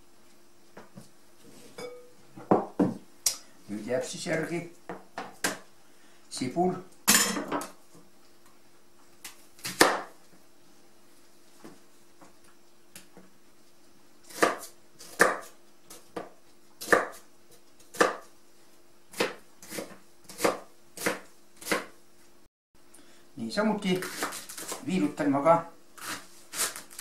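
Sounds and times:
knife slicing onion on cutting board: 9.2s - 10.2s, 14.2s - 18.4s, 19.1s - 22.0s, 24.0s - 24.9s, 26.0s - 27.0s.

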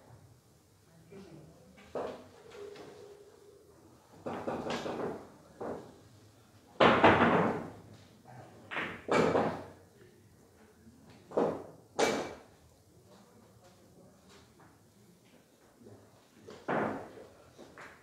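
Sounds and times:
billiard balls thudding on cushions: 6.8s - 7.8s.

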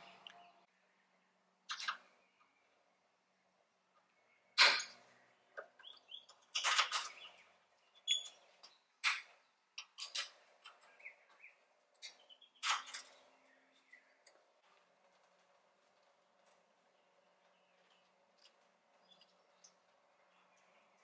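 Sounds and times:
faint bird chirps: 0.0s - 9.7s.

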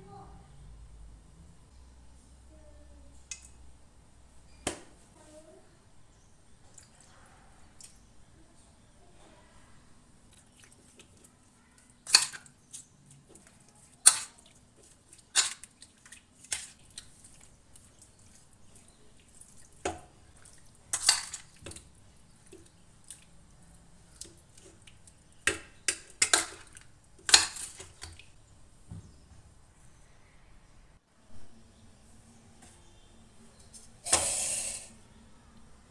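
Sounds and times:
soft wet squelches: 6.0s - 28.9s.

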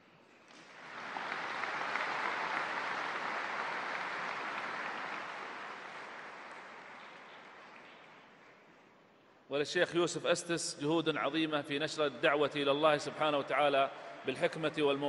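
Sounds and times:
large audience applauding: 0.5s - 8.8s.

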